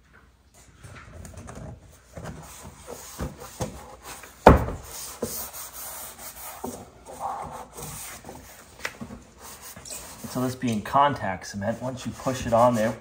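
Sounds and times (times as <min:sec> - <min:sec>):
hands rubbing vinyl plank: 0:02.1 - 0:10.8, 0:11.7 - 0:13.0
knocks of plank pushed into place: 0:04.4 - 0:04.9.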